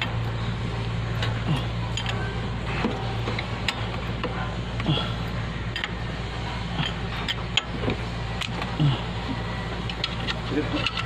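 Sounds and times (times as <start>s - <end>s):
steady low hum: 0.0s - 11.0s
metallic clicks from wrench and engine: 1.2s - 2.2s, 5.7s - 6.0s, 6.8s - 8.7s, 9.8s - 11.0s.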